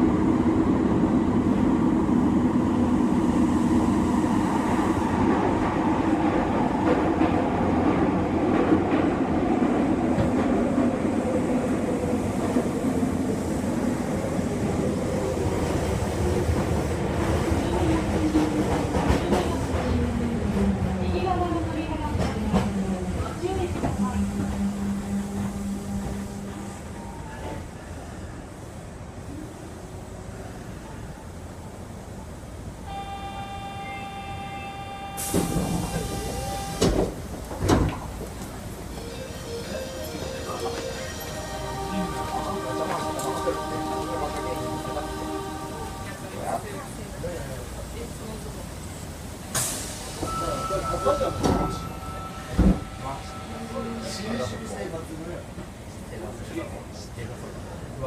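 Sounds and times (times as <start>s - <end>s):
train wheels rumbling: 0.0s - 28.8s
train inverter whine: 32.8s - 46.8s
air hiss: 49.0s - 50.6s.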